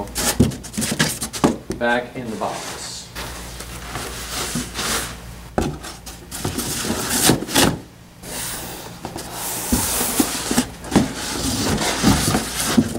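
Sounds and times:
cardboard scraping against box: 8.2 - 12.9.

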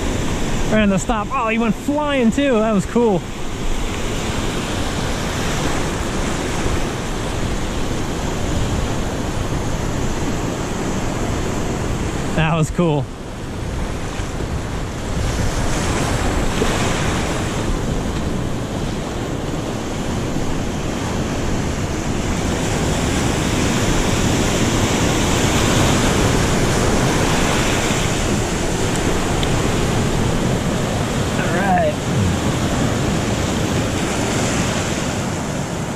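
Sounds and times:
ocean surf over rocks: 0.0 - 35.9.

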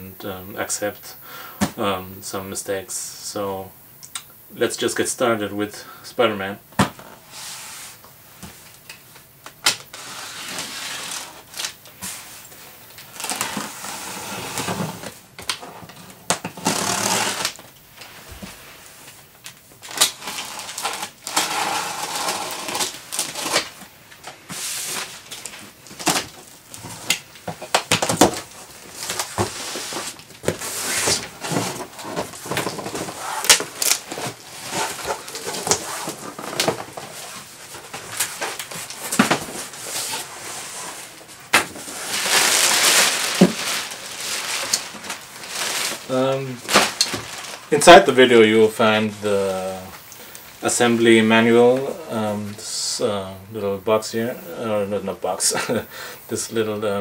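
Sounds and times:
tape and cardboard tearing: 9.4 - 12.3, 12.9 - 17.7, 19.4 - 47.7
box cutter slicing tape: 9.6 - 11.8, 16.5 - 17.6, 19.9 - 23.8.

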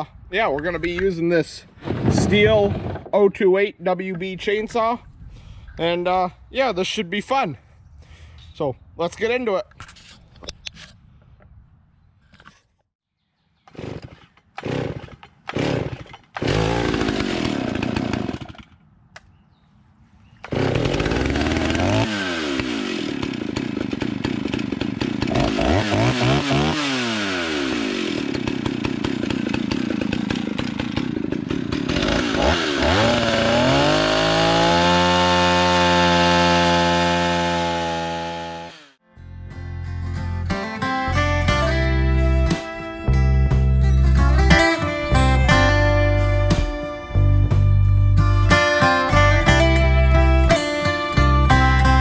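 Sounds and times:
chainsaw milling a log: 1.8 - 3.2, 13.6 - 18.8, 20.4 - 39.0.

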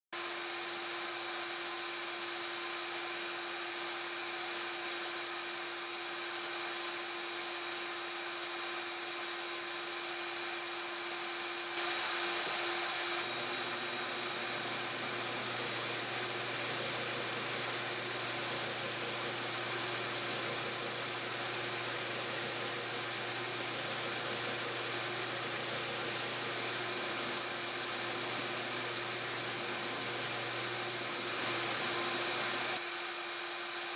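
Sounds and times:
drill press boring wood: 0.2 - 33.9
shop vacuum rushing: 10.2 - 33.8.

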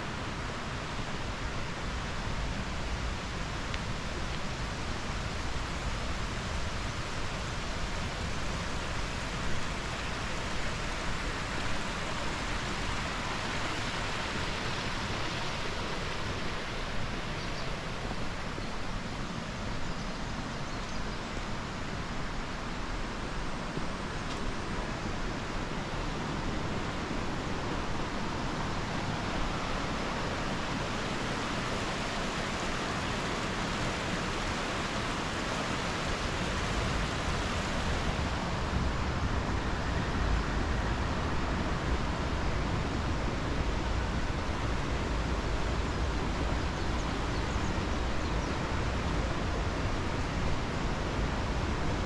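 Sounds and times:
waterfall rushing: 0.0 - 20.4.

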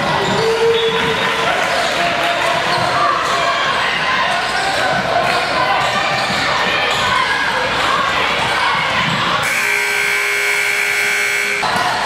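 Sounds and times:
basketball court noise: 0.0 - 12.0
scoreboard buzzer horn: 9.4 - 11.7.

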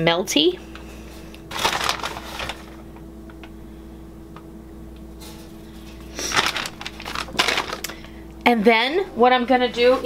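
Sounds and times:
steady low hum: 0.0 - 10.0
rustling at counter: 1.0 - 2.9, 5.2 - 8.2.

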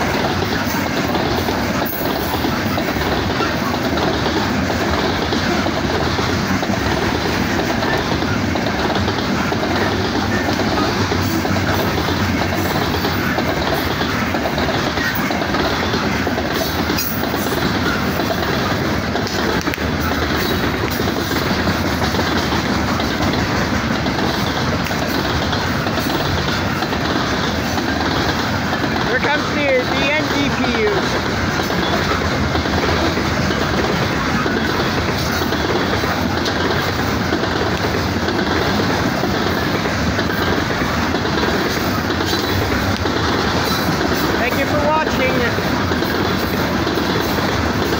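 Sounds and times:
train wheels on rails: 0.0 - 47.9.

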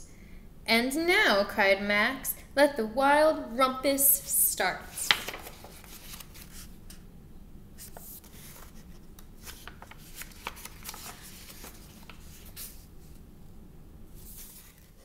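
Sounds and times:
book pages turning: 4.9 - 7.0, 7.8 - 13.2, 14.2 - 15.0
paper rustling and crinkling: 4.9 - 7.0, 7.8 - 13.2, 14.2 - 15.0.

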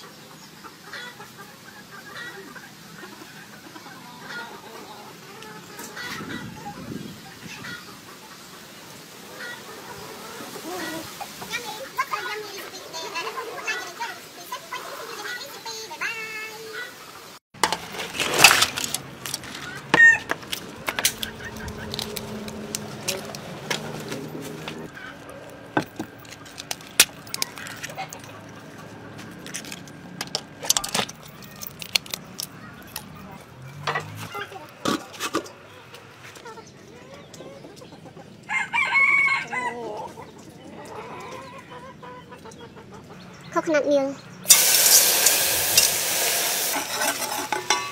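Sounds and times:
chickens clucking: 0.0 - 17.4, 19.3 - 47.9
chicken squawk: 0.8 - 8.0, 19.6 - 20.3, 36.4 - 43.1
rooster crowing: 38.5 - 40.0
water sloshing in metal basin: 44.5 - 47.9.

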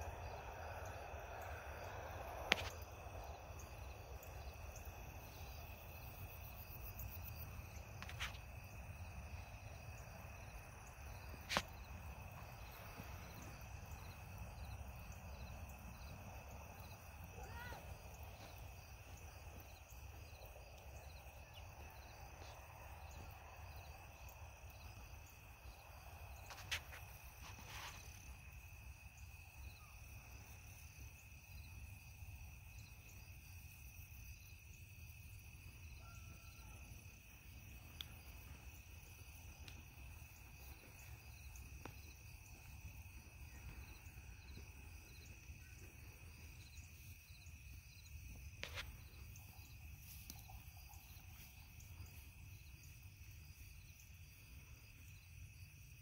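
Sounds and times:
low outdoor rumble: 0.0 - 26.5
insects trilling: 0.0 - 56.0
pulsing insect chirp: 0.0 - 56.0.

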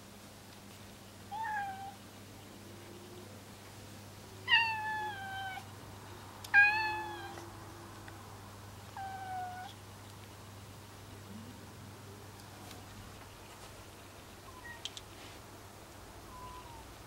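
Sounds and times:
cat meowing: 1.3 - 2.0, 4.4 - 5.7, 6.5 - 7.4, 9.0 - 9.8, 16.3 - 16.9.

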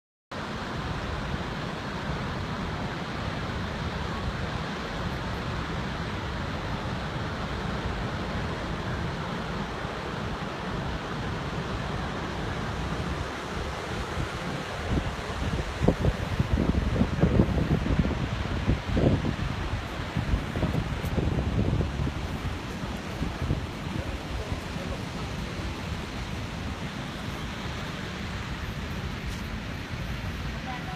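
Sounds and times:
waterfall rushing: 0.4 - 30.9
wind buffeting microphone: 11.3 - 30.9.

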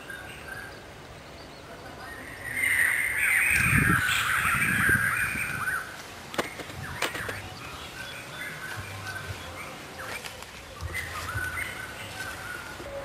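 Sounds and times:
birds calling: 0.0 - 13.0
sharp clicks: 6.3 - 7.4.

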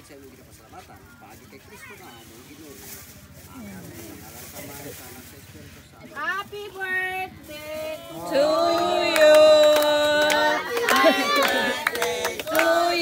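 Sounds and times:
group of voices singing: 8.0 - 13.0
hand claps: 8.7 - 13.0.

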